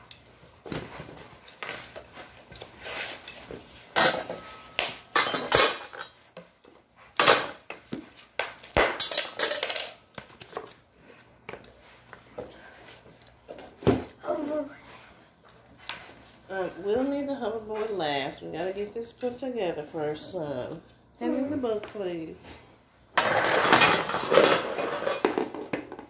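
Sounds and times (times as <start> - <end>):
metal bars clattering: 8.9 - 10.0.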